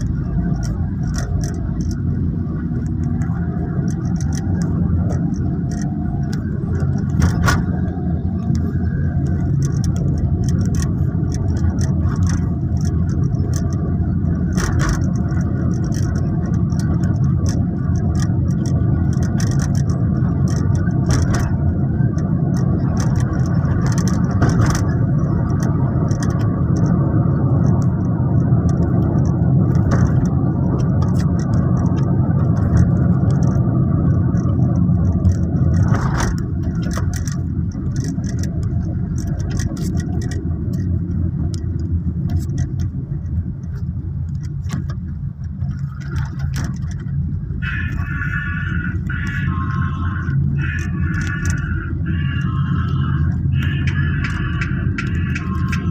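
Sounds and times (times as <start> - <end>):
light clicks and rattles: 0.0 - 47.6, 48.4 - 55.9
car engine and road rumble: 0.0 - 55.9.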